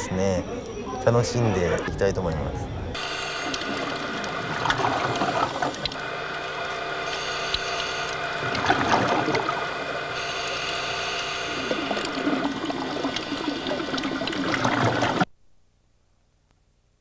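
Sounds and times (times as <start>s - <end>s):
steady hum: 0.0s - 17.0s
underwater exhaust bubbles: 2.3s - 15.3s.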